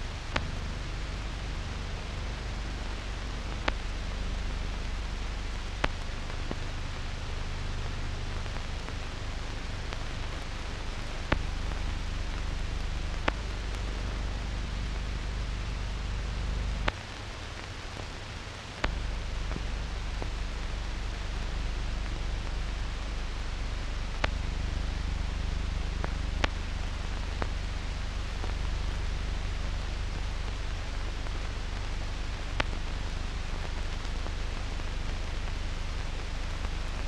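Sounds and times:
low hum: 0:00.0 - 0:16.9
film hiss: 0:00.0 - 0:37.0.

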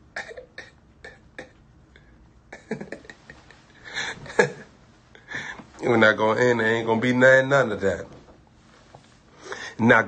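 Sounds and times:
man laughing: 0:02.5 - 0:04.8.

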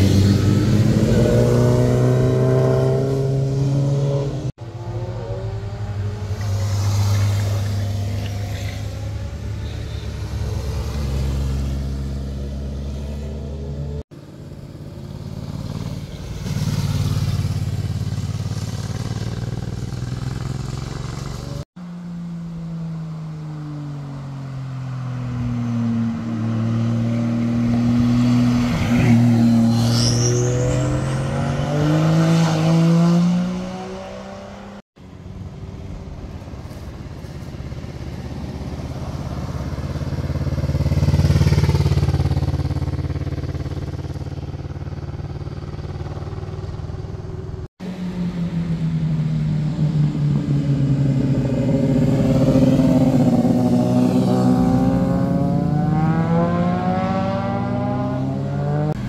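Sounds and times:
motorcycle engines: 0:00.0 - 0:59.0.

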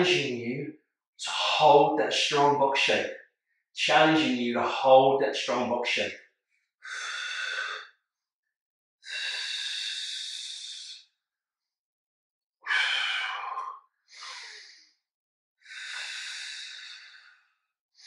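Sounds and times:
man breathing out loudly: 0:12.7 - 0:14.8.

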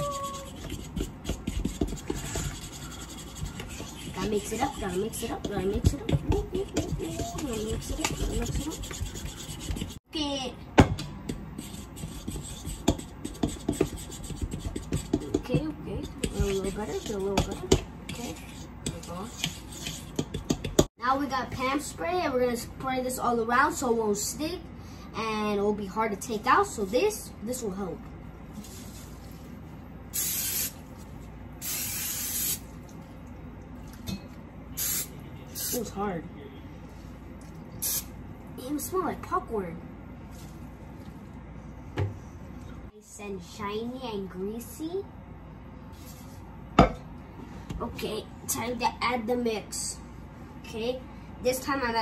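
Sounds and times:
spoon stirring batter in bowl: 0:00.3 - 0:10.0, 0:11.3 - 0:20.9.

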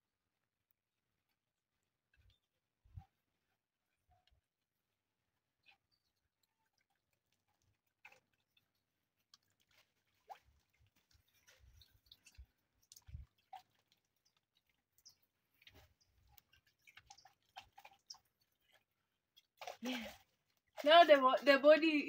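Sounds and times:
wet squishing of hands scrubbing face: 0:05.6 - 0:21.7.

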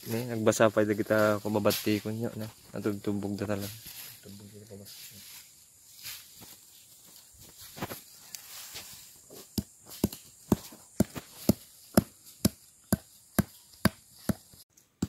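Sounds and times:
hand tool pounding roots: 0:09.2 - 0:15.0.

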